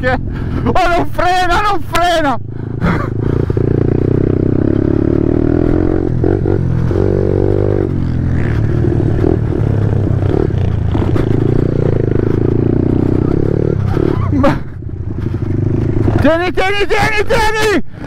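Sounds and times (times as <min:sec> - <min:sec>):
pit bike engine revving: 0:02.4 - 0:16.8.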